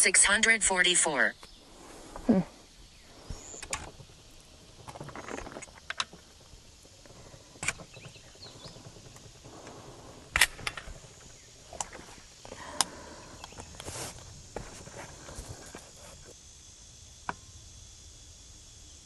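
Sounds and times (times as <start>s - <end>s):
air rifle action clicking: 4.8s - 13.9s.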